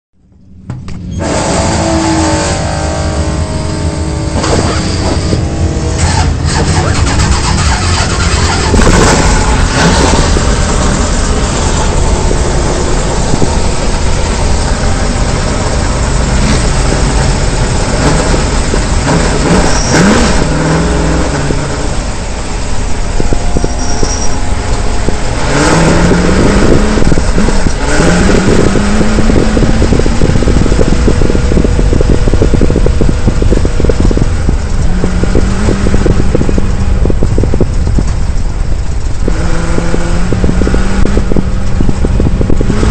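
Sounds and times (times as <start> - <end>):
truck engine revving: 0.2 - 42.9.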